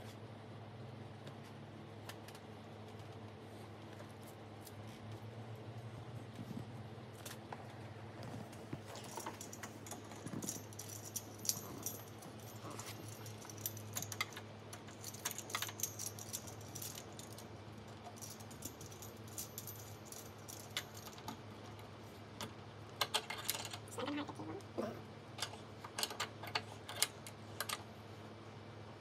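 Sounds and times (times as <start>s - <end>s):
small metallic rattles: 8.2s - 21.8s.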